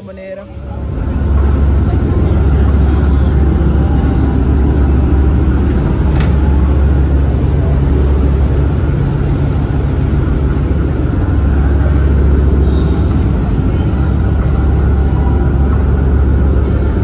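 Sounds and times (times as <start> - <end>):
boat engine humming: 0.0 - 17.0.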